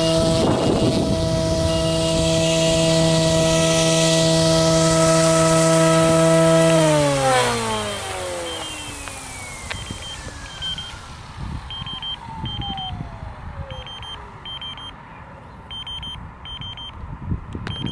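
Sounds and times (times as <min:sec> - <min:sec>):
helicopter motor whine spinning down: 0:00.0 - 0:14.9
short electronic beeps: 0:09.7 - 0:11.0, 0:11.7 - 0:12.9, 0:13.7 - 0:15.0, 0:15.7 - 0:17.0, 0:17.7 - 0:17.9.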